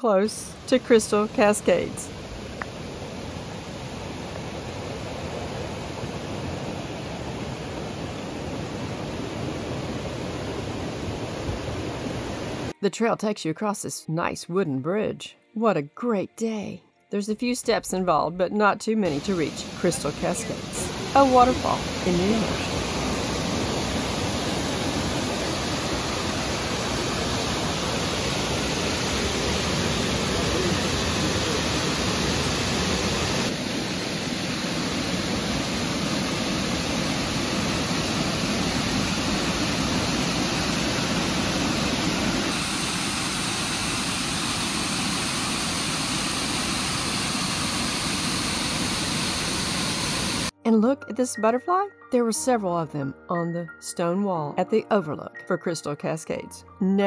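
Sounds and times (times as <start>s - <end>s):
waterfall rushing over rock: 19.1s - 50.5s.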